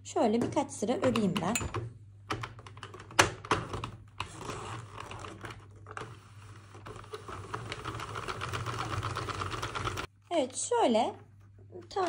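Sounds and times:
knitting machine clicking: 6.8s - 10.1s.

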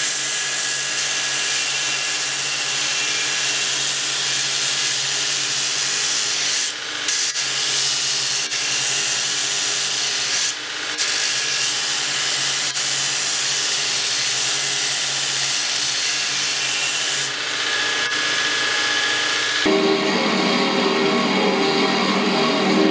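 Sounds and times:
steel grinding on belt: 0.0s - 19.7s
grinder motor hum: 15.2s - 22.9s.

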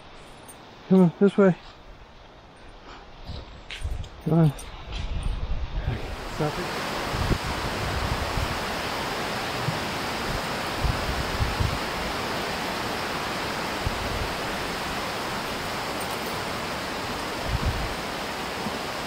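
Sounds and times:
creek water rushing: 6.0s - 19.0s.

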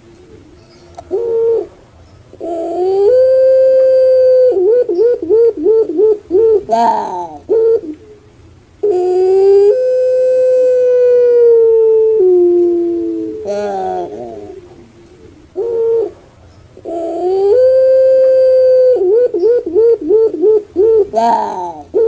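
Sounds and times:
dove cooing: 0.0s - 22.0s.

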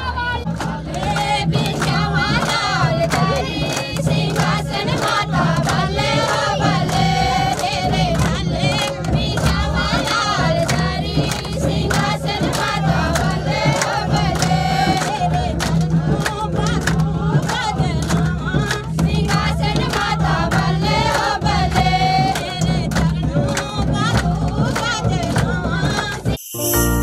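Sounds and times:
group singing a devotional chant: 0.0s - 26.4s
rhythmic percussion strikes: 0.2s - 27.0s.

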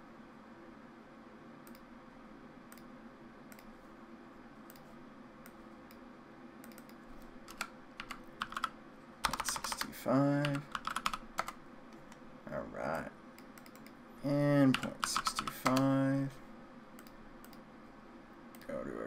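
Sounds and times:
faint steady hum: 0.0s - 19.0s
keyboard keystrokes: 6.6s - 11.6s, 14.7s - 16.0s.

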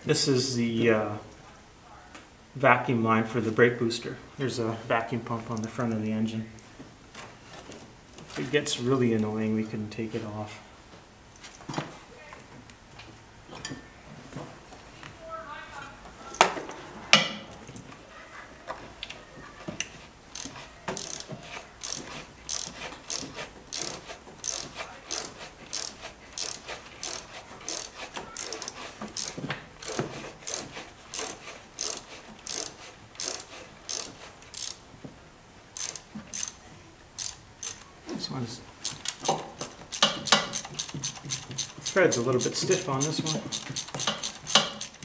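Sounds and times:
socket ratchet clicking: 20.3s - 34.8s, 35.8s - 36.6s, 37.2s - 37.9s, 38.8s - 45.0s.

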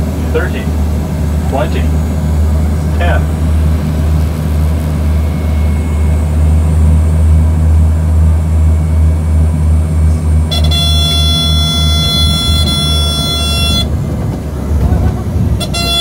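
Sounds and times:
propeller engine droning: 0.0s - 16.0s
high horn-like tone: 10.4s - 14.0s, 15.6s - 16.0s.

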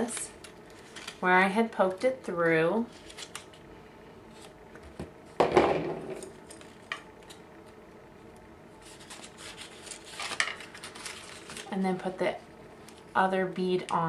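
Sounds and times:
paper rustling: 0.0s - 1.3s, 2.8s - 3.6s, 8.8s - 11.8s.

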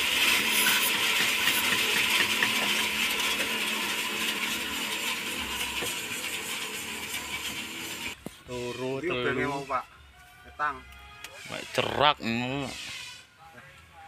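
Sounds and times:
sawmill machine running: 0.0s - 9.0s.

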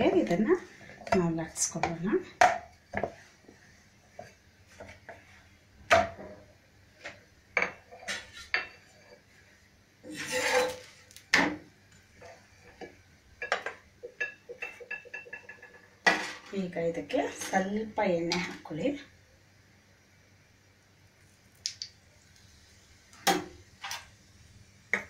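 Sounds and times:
rolling pin rubbing scrapes: 10.0s - 11.0s.

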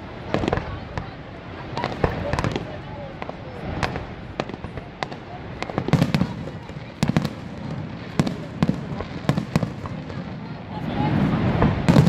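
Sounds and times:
fireworks bangs and booms: 0.0s - 12.0s.

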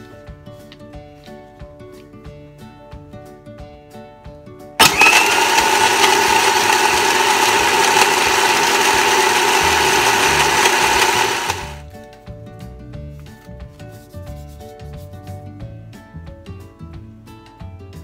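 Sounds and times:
blender crushing ice: 4.8s - 11.8s.

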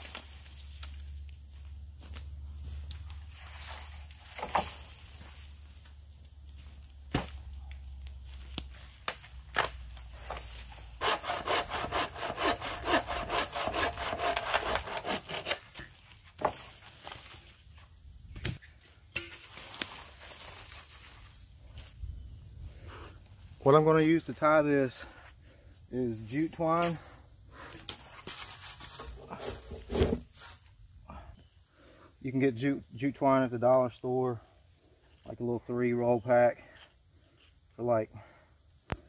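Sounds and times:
hand saw cutting wood: 11.0s - 15.9s.

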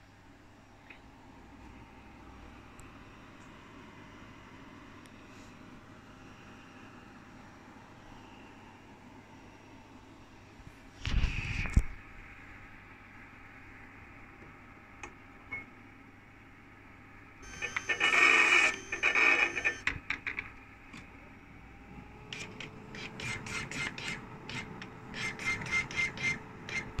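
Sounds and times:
label printer whirring strokes: 17.4s - 19.9s, 21.9s - 27.0s
label applicator whirring: 21.8s - 27.0s.

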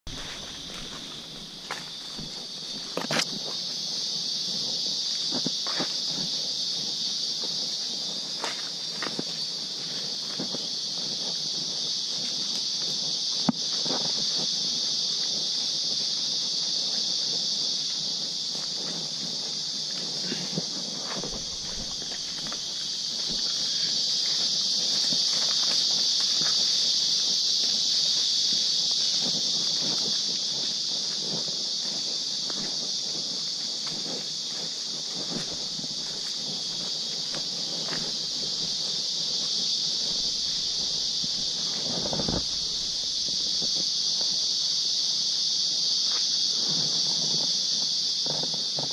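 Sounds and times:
footsteps on dirt trail: 0.0s - 48.9s
insects droning: 0.0s - 48.9s.

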